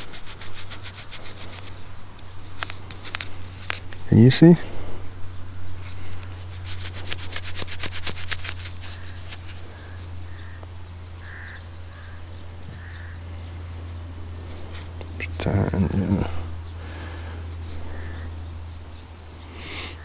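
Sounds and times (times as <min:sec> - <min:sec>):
fingers rubbing soil off coin: 0:00.0 - 0:04.4, 0:06.1 - 0:10.1
steady low hum: 0:00.0 - 0:20.0
crows cawing: 0:08.8 - 0:13.5, 0:16.8 - 0:18.4.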